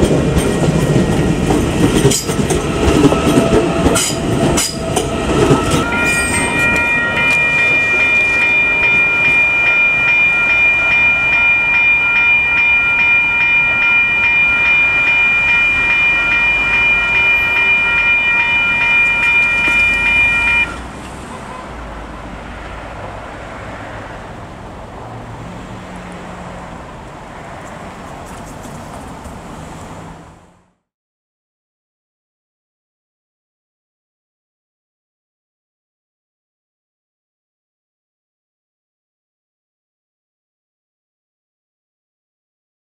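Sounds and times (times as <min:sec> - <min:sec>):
electric train pulling away: 0:00.1 - 0:20.9
level crossing alarm bells: 0:02.7 - 0:20.8.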